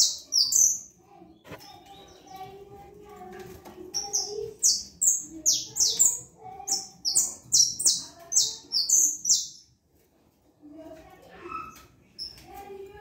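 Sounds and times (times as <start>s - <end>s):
finch chirping: 0.0s - 2.5s, 3.9s - 9.7s.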